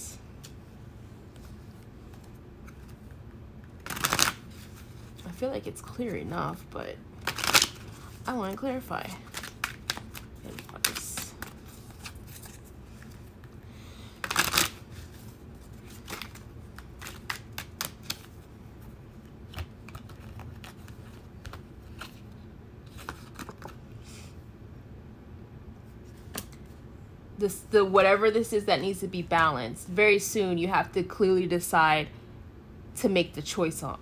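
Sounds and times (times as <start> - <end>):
cards being shuffled: 1.3 - 5.2, 7.2 - 13.6, 14.2 - 23.8, 26.0 - 26.8.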